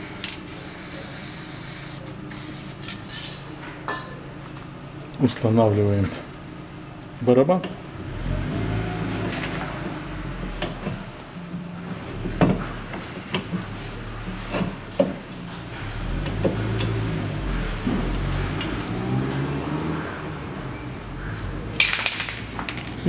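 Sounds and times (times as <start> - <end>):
steady low hum: 9.8 - 19.0.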